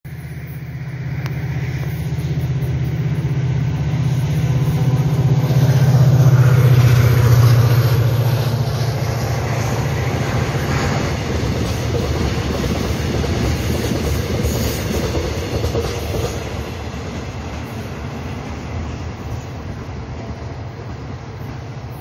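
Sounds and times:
locomotive engine throbbing: 0:00.1 - 0:14.4.

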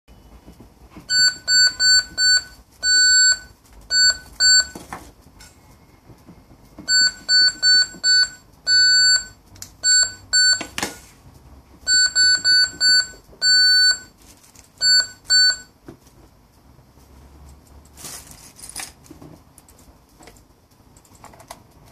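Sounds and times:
keypad beeps: 0:01.1 - 0:04.8, 0:06.8 - 0:10.8, 0:11.8 - 0:14.2, 0:14.8 - 0:15.8.

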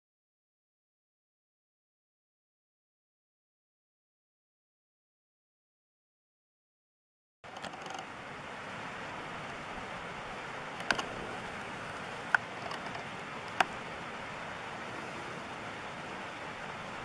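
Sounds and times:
rushing outdoor background noise: 0:07.4 - 0:17.0
sharp clicks: 0:10.8 - 0:11.2.

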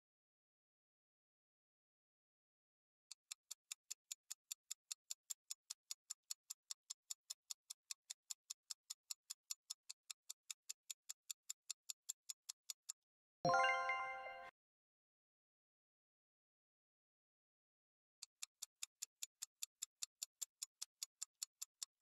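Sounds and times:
bright ringing chime: 0:13.5 - 0:14.5
clock-like timer ticking: 0:18.2 - 0:22.0.

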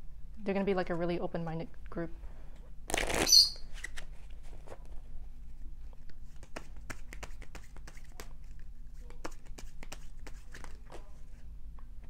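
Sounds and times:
cards being shuffled: 0:02.9 - 0:04.9, 0:06.3 - 0:11.4.

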